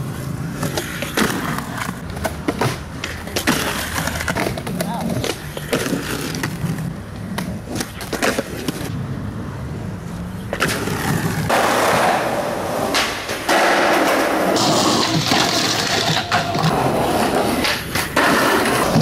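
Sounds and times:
skateboard wheels rolling on concrete: 0:00.0 - 0:19.0
skateboard clacks and knocks: 0:10.5 - 0:19.0.

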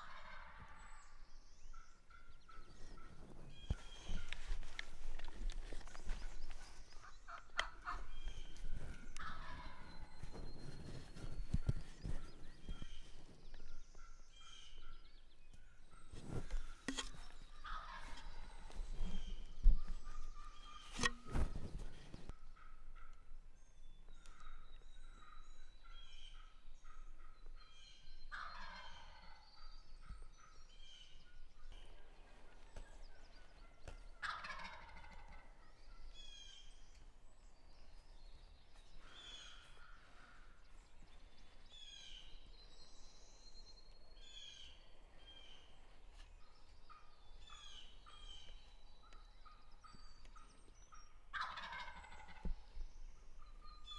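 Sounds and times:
turkey gobbling: 0:00.0 - 0:00.8, 0:06.9 - 0:10.2, 0:17.6 - 0:18.5, 0:28.3 - 0:29.4, 0:33.6 - 0:35.6, 0:51.3 - 0:52.5
songbirds chirping: 0:00.0 - 0:53.9.

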